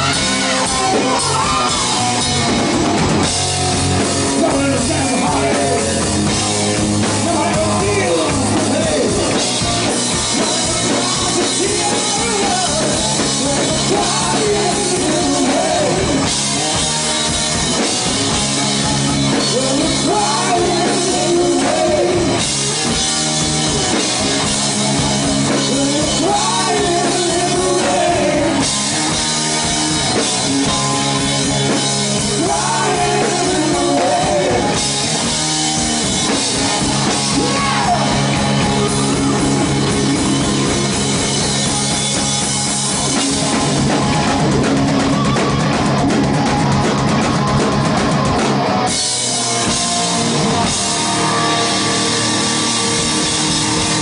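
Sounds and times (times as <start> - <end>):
live rock band playing: 0.0 - 54.0
man singing: 4.2 - 9.5, 10.2 - 17.4, 18.8 - 23.0, 25.0 - 29.5, 31.7 - 35.1, 36.3 - 39.6.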